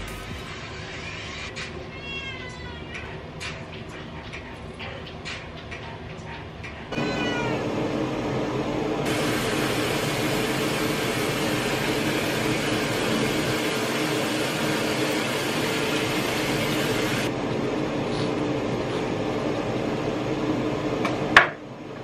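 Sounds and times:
cat meowing: 0:00.9 - 0:03.2, 0:06.9 - 0:07.7
steady hum: 0:02.9 - 0:22.0
bathroom tap running: 0:09.0 - 0:17.3.

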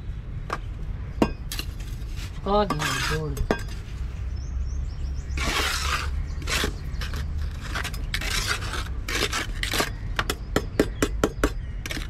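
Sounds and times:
trowel scraping wet concrete: 0:01.5 - 0:04.1, 0:05.3 - 0:10.4.

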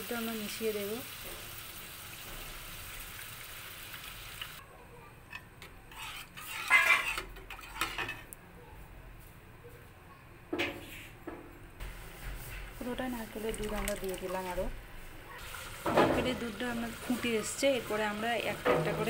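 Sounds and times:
paste sizzling in oil: 0:00.0 - 0:04.6, 0:15.4 - 0:19.0
spatula scraping and knocking pan: 0:05.3 - 0:08.3, 0:11.8 - 0:13.5, 0:17.8 - 0:19.0.

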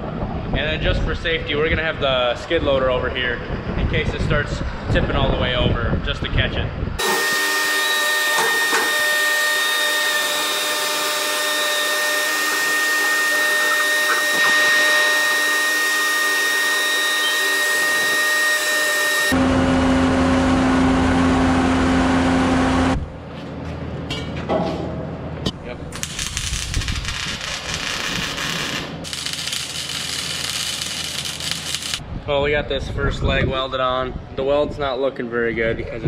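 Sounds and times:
skid loader machine whine: 0:07.0 - 0:23.2.

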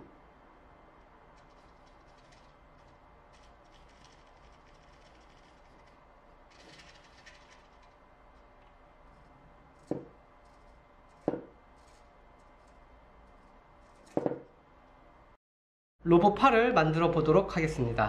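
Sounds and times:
faint electrical hum: 0:00.0 - 0:15.4, 0:16.0 - 0:18.0
sharp knocks: 0:11.2 - 0:11.6.

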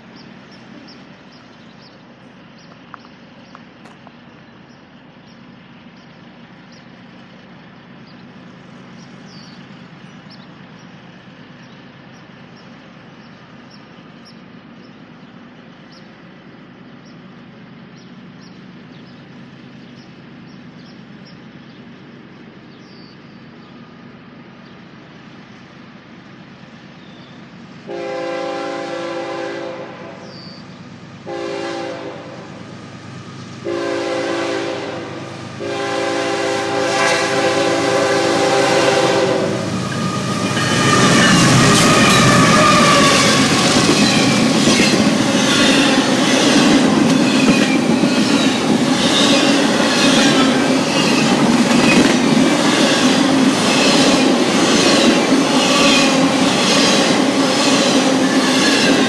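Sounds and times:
train engine and wheel noise: 0:00.0 - 0:59.0
locomotive air horn blasts: 0:27.9 - 0:30.2, 0:31.2 - 0:32.6, 0:33.6 - 0:43.8.

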